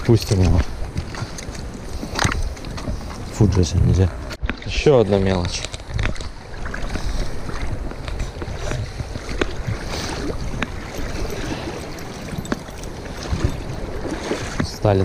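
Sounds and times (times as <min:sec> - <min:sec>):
wind rumbling on microphone: 0:00.0 - 0:15.0
river water rushing: 0:08.5 - 0:14.6.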